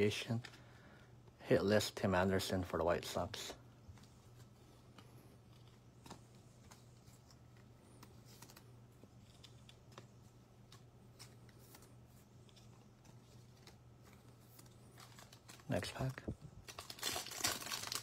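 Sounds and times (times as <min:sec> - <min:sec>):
low steady hum: 0:00.0 - 0:18.0
trading cards clicking and sliding: 0:03.9 - 0:16.1.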